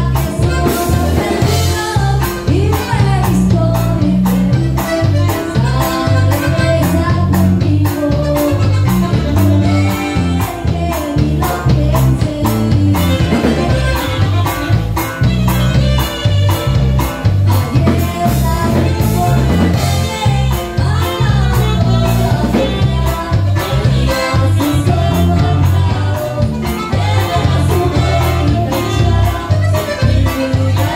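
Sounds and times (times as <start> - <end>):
bass line: 0.0 - 30.9
drum beat: 0.1 - 30.9
saxophone playing: 4.6 - 7.3, 8.3 - 10.6, 13.0 - 20.2, 23.5 - 30.9.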